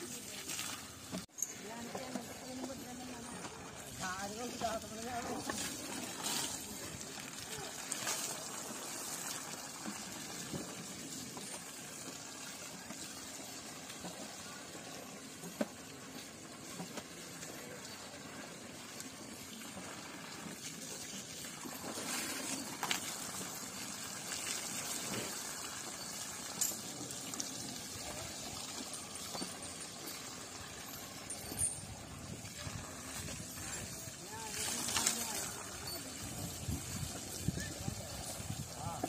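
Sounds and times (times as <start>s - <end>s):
water running and splashing: 0.0s - 39.0s.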